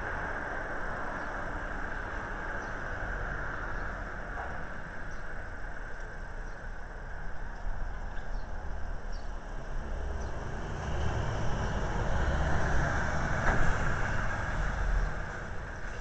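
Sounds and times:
passing vehicle rumble: 7.8 - 16.0.

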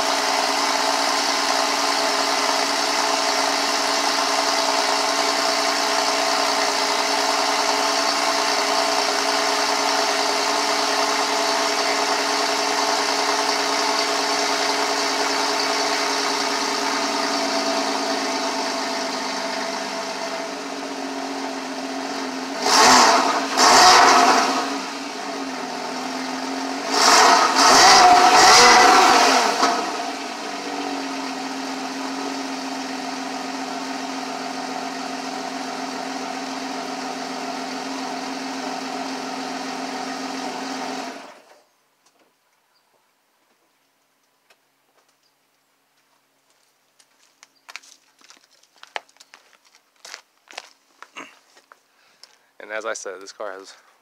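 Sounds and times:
car engine idling and revving: 0.0 - 41.7.

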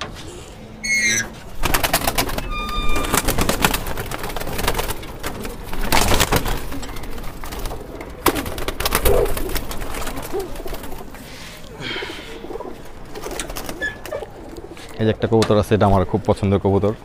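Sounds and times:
pigeons cooing: 0.0 - 16.3
wings flapping: 1.0 - 15.0.

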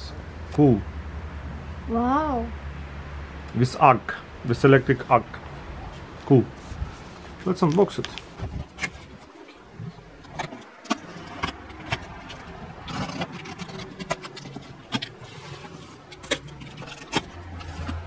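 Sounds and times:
crinkling of card and tape: 7.2 - 18.0.

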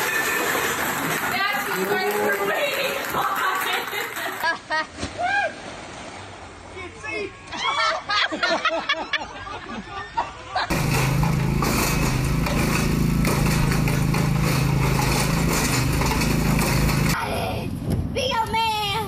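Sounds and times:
small engine running loudly: 10.7 - 17.2.

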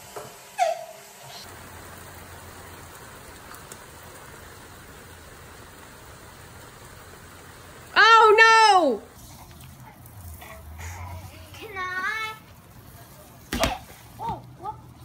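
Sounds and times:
toddler squealing: 0.6 - 1.0
steady rain falling: 1.4 - 15.0.

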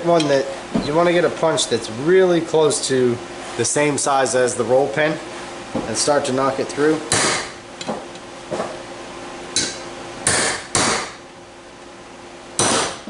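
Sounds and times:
hammer striking metal punch: 7.1 - 7.6, 9.6 - 11.2, 12.6 - 13.0.

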